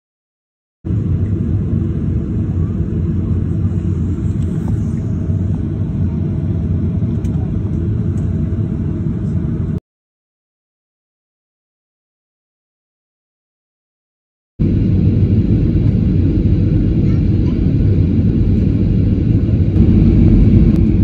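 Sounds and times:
low rumble: 0.9s - 9.8s, 14.6s - 21.0s.

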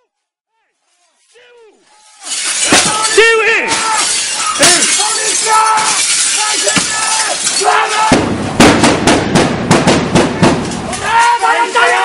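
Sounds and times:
men shouting: 1.4s - 8.3s, 10.8s - 12.0s
glass breaking: 2.0s - 8.9s.

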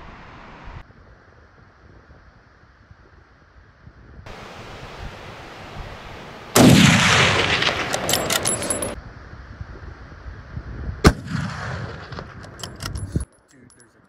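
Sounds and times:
wind noise: 0.0s - 13.3s
rifle shot: 6.6s - 9.0s, 11.0s - 12.9s.

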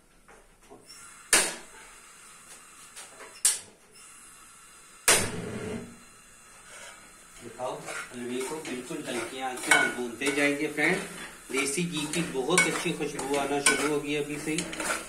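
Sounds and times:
gas burner lighting: 0.8s - 15.0s.

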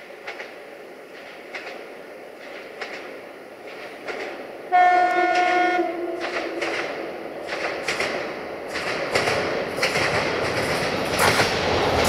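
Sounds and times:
train wheels clacking over rail joints: 0.1s - 12.0s
train horn blast: 4.7s - 6.7s.

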